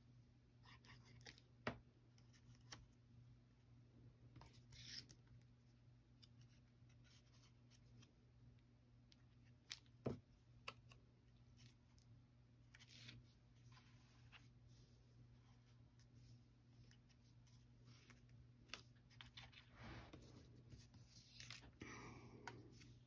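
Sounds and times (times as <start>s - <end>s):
faint steady hum: 0.0s - 23.0s
soft rustle: 12.7s - 21.8s.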